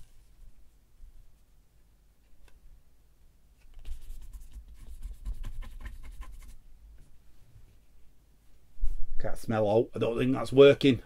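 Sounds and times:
fingertip scratching card: 0:03.7 - 0:06.6.

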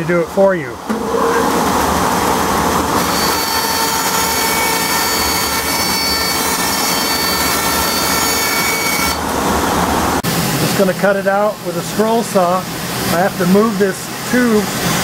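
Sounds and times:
bandsaw cutting board: 0:03.0 - 0:09.2.

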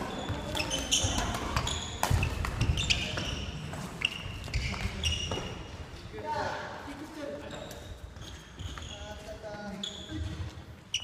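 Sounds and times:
sneakers squeaking on wooden floor: 0:00.0 - 0:06.0, 0:07.0 - 0:11.0
rackets hitting shuttlecock: 0:00.2 - 0:03.8.

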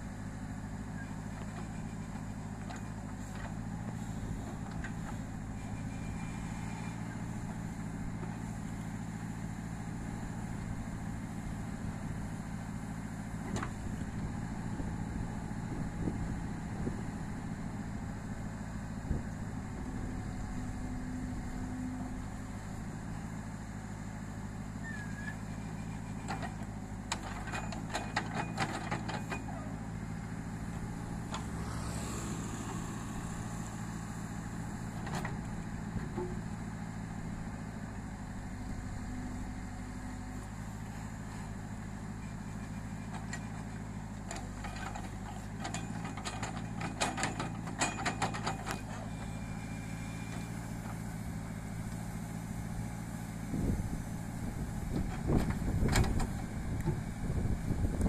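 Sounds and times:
diesel engine running: 0:00.0 - 0:58.0
backhoe knocking and rattling: 0:25.8 - 0:29.8, 0:42.9 - 0:49.2, 0:54.9 - 0:57.1.

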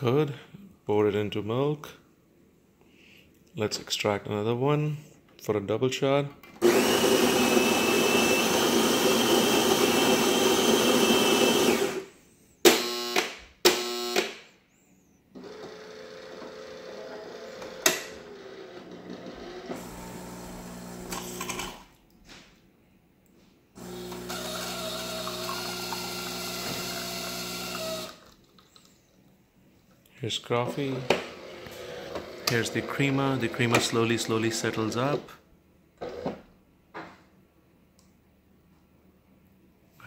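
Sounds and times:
espresso pump humming: 0:06.6 - 0:12.0, 0:19.8 - 0:21.8, 0:23.8 - 0:28.4
brew unit motor whirring: 0:06.6 - 0:12.1, 0:15.3 - 0:21.8, 0:23.8 - 0:28.4, 0:30.5 - 0:35.3
coffee grinder running: 0:06.6 - 0:12.1, 0:19.7 - 0:21.8, 0:23.8 - 0:28.4.

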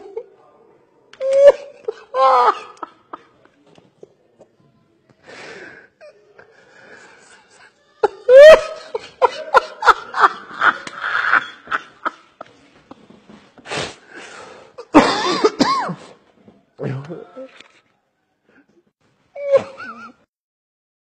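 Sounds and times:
man laughing: 0:08.3 - 0:12.2.

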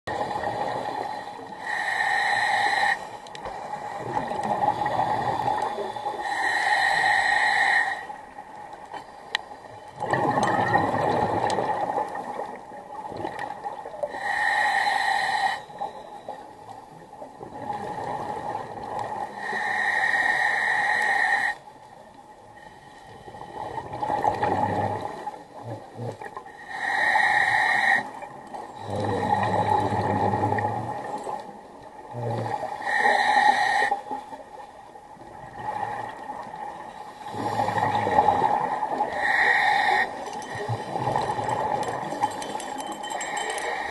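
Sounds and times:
hissing regulator inhale: 0:00.7 - 0:04.0, 0:05.2 - 0:08.1, 0:14.1 - 0:16.4, 0:19.3 - 0:21.6, 0:26.5 - 0:28.2, 0:32.8 - 0:34.2, 0:39.1 - 0:43.9
bubbling exhale underwater: 0:10.0 - 0:12.4.

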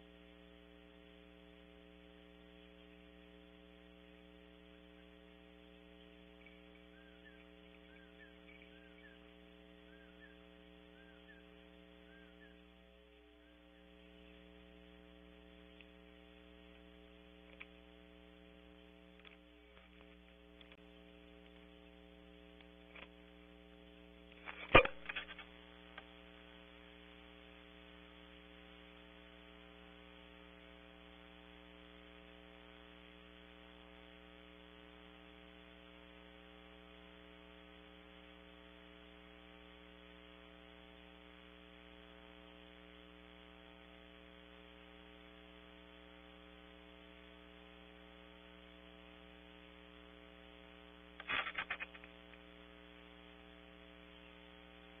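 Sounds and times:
electrical mains hum: 0:00.0 - 0:55.0
crackly noise burst: 0:51.1 - 0:53.0.

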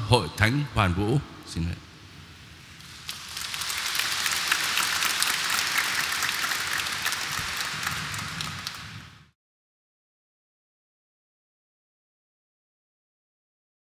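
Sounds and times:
crowd applauding: 0:02.8 - 0:09.3.

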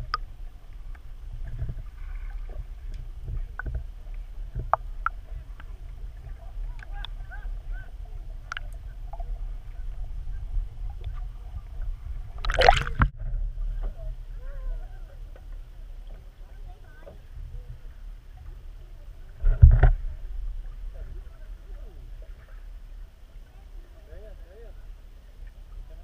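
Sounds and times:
sharp clicks underwater: 0:00.0 - 0:05.8, 0:06.7 - 0:07.2, 0:08.4 - 0:09.3, 0:12.4 - 0:13.2
low underwater rumble: 0:00.0 - 0:26.0.

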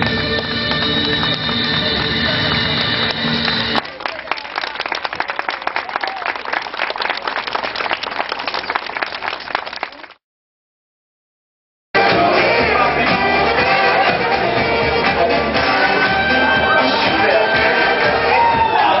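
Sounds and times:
music playing: 0:00.0 - 0:03.8, 0:12.0 - 0:19.0
crowd applauding: 0:00.0 - 0:10.2, 0:13.6 - 0:19.0.

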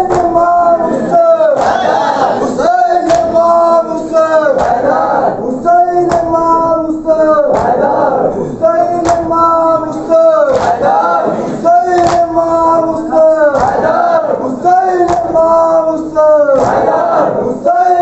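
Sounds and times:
men chanting a lament: 0:00.0 - 0:18.0
hands slapping chests: 0:01.6 - 0:02.2, 0:03.0 - 0:03.4, 0:04.5 - 0:05.0, 0:06.0 - 0:06.4, 0:07.5 - 0:07.9, 0:09.0 - 0:09.3, 0:09.9 - 0:11.1, 0:11.9 - 0:12.4, 0:13.6 - 0:14.0, 0:15.0 - 0:15.4, 0:16.6 - 0:17.0.

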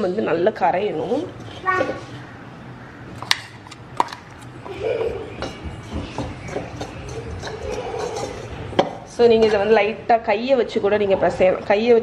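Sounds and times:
metal spoon scraping a metal bowl: 0:00.9 - 0:02.3, 0:05.3 - 0:09.8.

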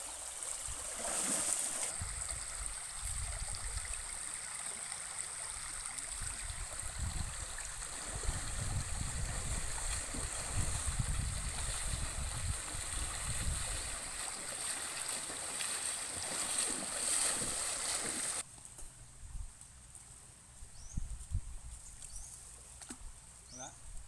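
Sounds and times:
small splashes: 0:00.0 - 0:18.4
water sloshing and splashing: 0:00.4 - 0:02.2, 0:06.6 - 0:18.4.

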